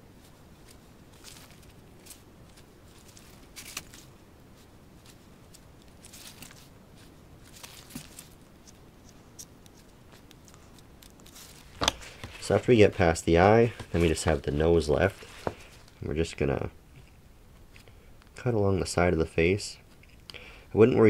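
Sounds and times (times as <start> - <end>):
gloved hands pulling pelt: 0.6 - 16.0.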